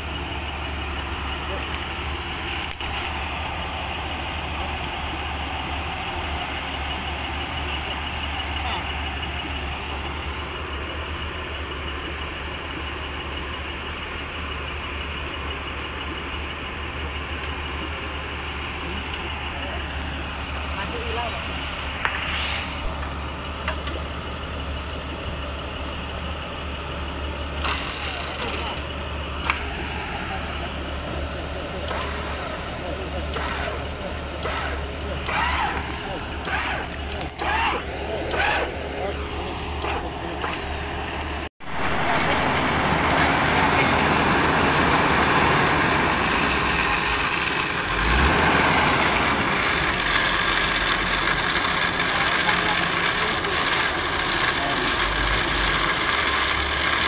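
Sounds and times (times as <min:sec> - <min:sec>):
car engine idling: 0:00.0 - 0:57.0
deep low hum: 0:19.3 - 0:25.7
rattling noise: 0:27.5 - 0:43.9.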